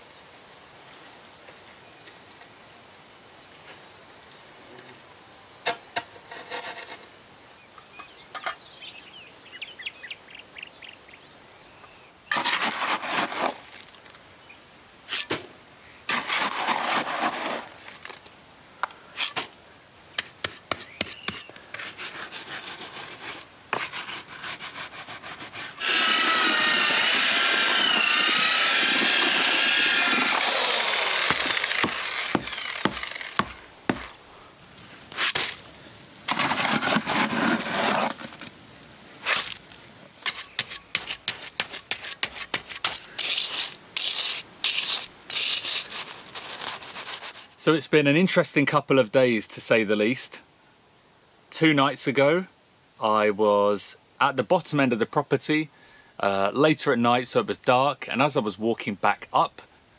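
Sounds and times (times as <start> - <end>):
electric drill mixing concrete: 12.3 - 13.6, 16.1 - 17.7, 25.8 - 34.2, 36.3 - 38.2.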